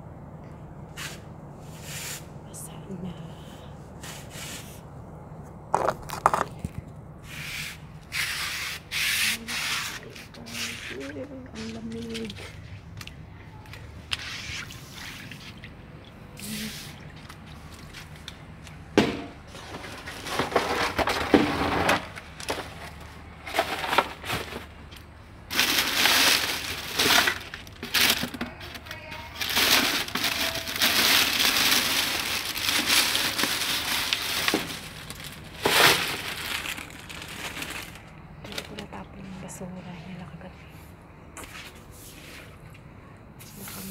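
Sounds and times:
plastic bags rustling: 19.4s - 39.1s.

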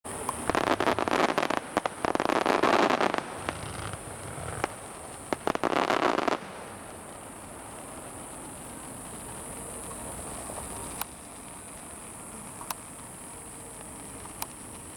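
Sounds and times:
fireworks crackling: 0.1s - 14.9s
sharp firework cracks: 0.1s - 14.9s.

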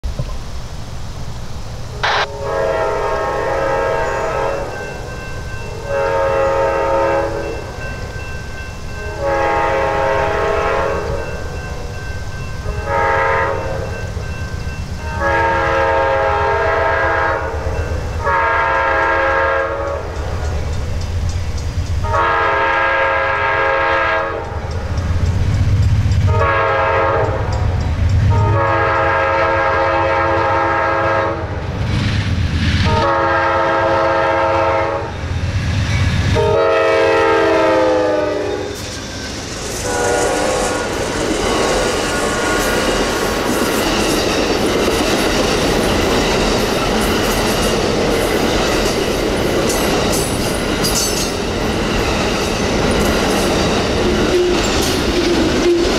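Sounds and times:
locomotive horn blasts: 2.0s - 4.8s, 5.8s - 7.7s, 9.0s - 11.3s, 12.7s - 14.0s, 15.0s - 20.2s, 22.0s - 24.6s, 26.2s - 27.5s, 28.3s - 31.5s, 32.9s - 35.1s, 36.3s - 38.8s, 39.8s - 40.9s
rail cars clattering over joints: 3.8s - 22.4s, 24.3s - 29.2s, 35.2s - 55.9s.

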